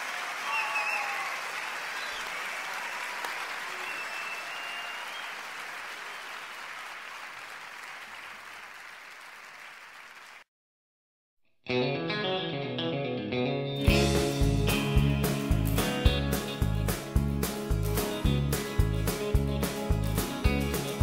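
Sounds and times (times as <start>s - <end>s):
spectators applauding: 0.0s - 10.5s.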